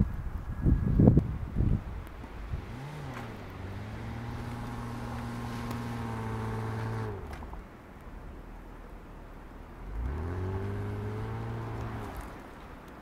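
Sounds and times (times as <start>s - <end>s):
engine revving: 2.4s - 7.6s, 9.9s - 12.4s.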